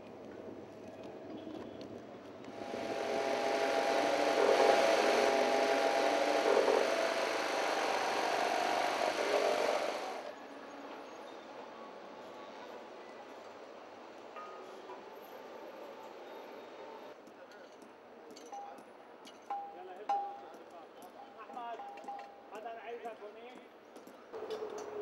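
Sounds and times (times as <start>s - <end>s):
motor-driven machine humming: 2.5s - 10.3s.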